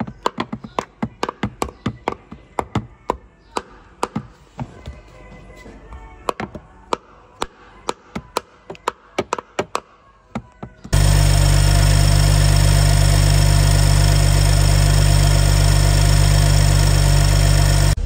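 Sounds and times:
car engine idling: 10.9 - 18.0.

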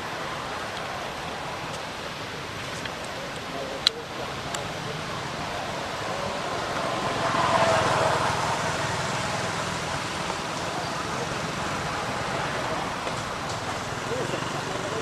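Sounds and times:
road vehicle passing: 0.0 - 15.0.

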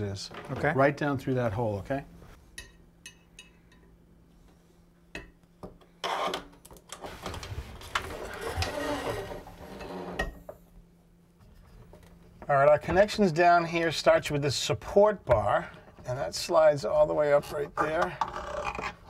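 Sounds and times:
hoses rubbing and scraping: 7.0 - 10.2.

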